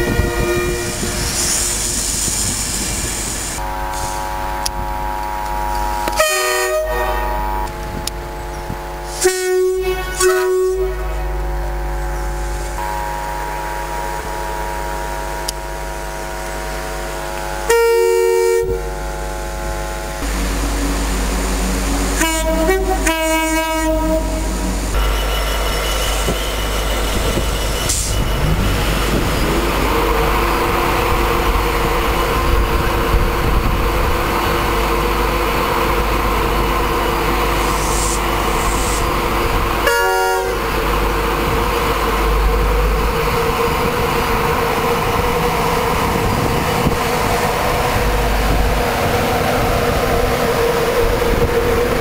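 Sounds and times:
train horn: 0.0s - 1.7s, 2.8s - 28.5s, 29.8s - 52.0s
electric locomotive humming: 0.0s - 52.0s
short choppy horn blast: 22.2s - 26.6s.

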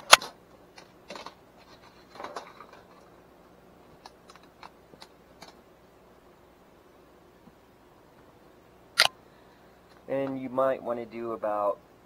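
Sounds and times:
wire clicks and rustles: 0.0s - 3.2s, 3.8s - 5.7s.

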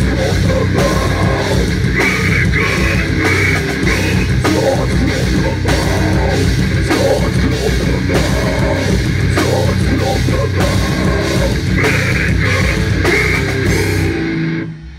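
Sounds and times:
shouted vocal: 0.0s - 6.4s, 7.0s - 14.2s
heavy metal band playing: 0.0s - 14.9s.

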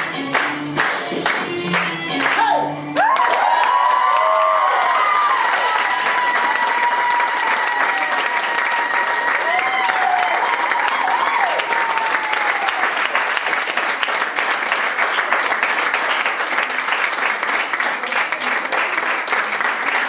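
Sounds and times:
audience applauding: 0.3s - 20.0s.

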